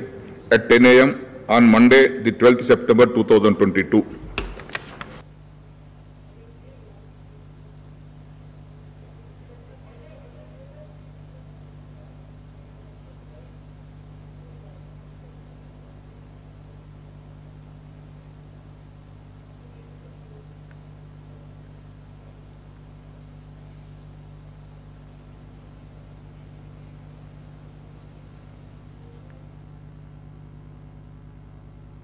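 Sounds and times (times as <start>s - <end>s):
voice: 0.0s - 5.2s, 9.3s - 11.1s
low electrical hum: 0.0s - 32.0s.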